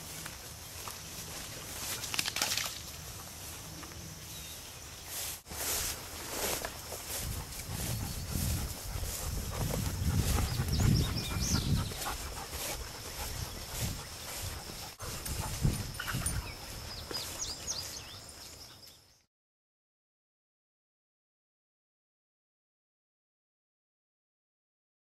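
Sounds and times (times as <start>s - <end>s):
footsteps through long grass: 0.0s - 19.0s
insects buzzing: 0.0s - 19.0s
low rumble of movement: 7.0s - 16.7s
bird chirps: 10.3s - 19.2s.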